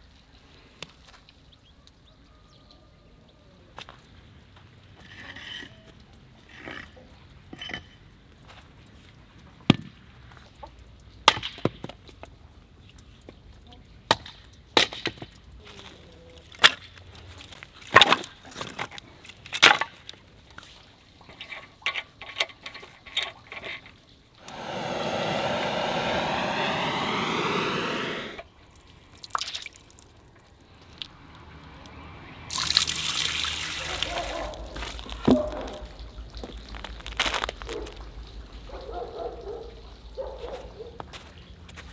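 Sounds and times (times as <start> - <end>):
water running from a tap: 32.5 - 34.2.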